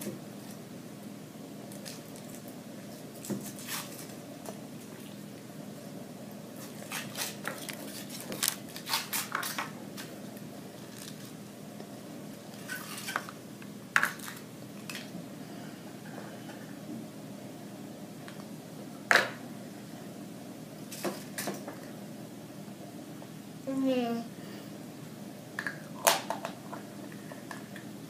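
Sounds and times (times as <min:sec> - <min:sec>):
foil wrapper crinkling: 0:03.2 - 0:04.2, 0:06.6 - 0:10.1, 0:10.8 - 0:11.4.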